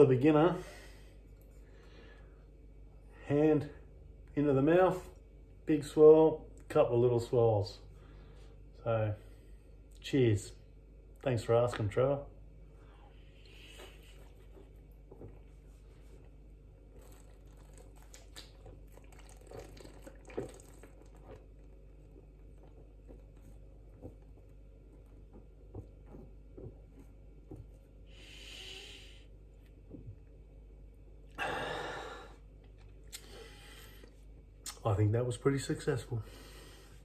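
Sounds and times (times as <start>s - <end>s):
breathy hiss: 12.8s - 14.5s, 28.0s - 29.4s, 31.4s - 32.5s, 36.2s - 37.0s
man gulping and swallowing: 14.0s - 28.1s, 29.4s - 31.4s
man breathing out: 31.4s - 32.4s.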